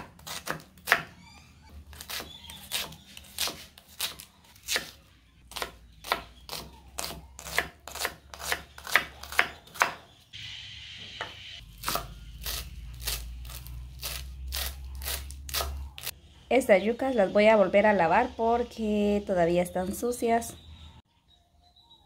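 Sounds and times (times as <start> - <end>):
knife chopping on wooden board: 0.0 - 1.1, 1.9 - 10.1, 11.2 - 16.1.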